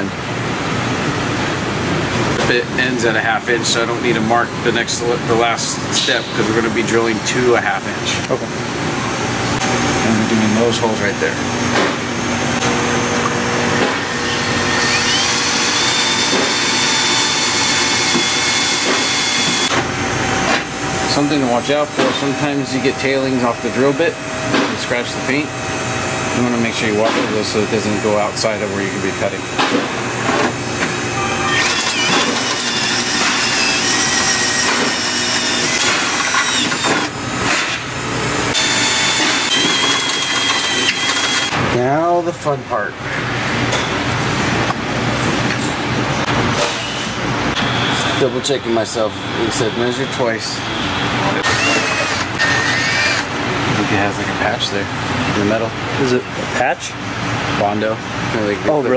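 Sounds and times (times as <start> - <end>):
drill cutting sheet metal: 14.0 - 19.8, 31.5 - 37.2, 38.5 - 41.6, 51.4 - 53.3.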